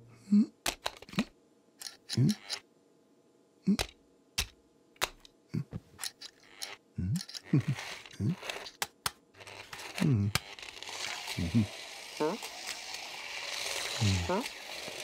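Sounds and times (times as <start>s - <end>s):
plastic clicks and clacks: 0.6s - 2.6s
low vocal murmurs: 10.0s - 10.4s, 11.4s - 12.4s.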